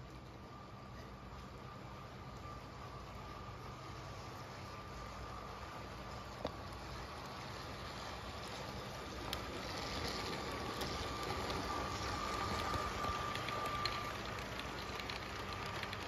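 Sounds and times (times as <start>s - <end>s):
toy train motor whine: 1.0s - 16.0s
wheels clattering on plastic track: 6.3s - 16.0s.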